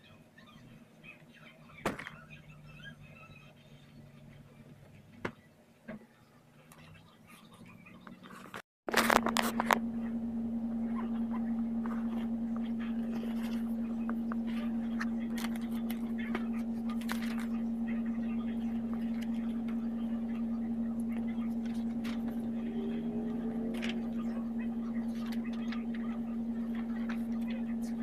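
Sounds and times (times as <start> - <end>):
low hum: 8.9 - 28.0.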